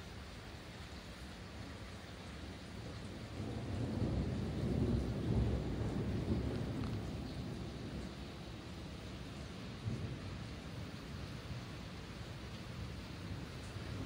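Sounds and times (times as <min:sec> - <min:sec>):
rain hiss: 0:00.0 - 0:14.0
thunder rumbling: 0:02.8 - 0:14.0.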